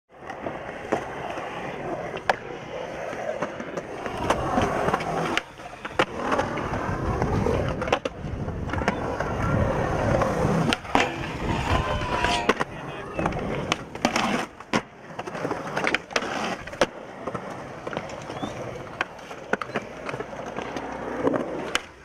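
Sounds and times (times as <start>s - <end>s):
skateboard wheels rolling on concrete: 0.1s - 22.0s
skateboard trucks grinding metal rail: 0.8s - 22.0s
skateboard clacks popping and landing: 2.1s - 2.5s, 3.1s - 22.0s.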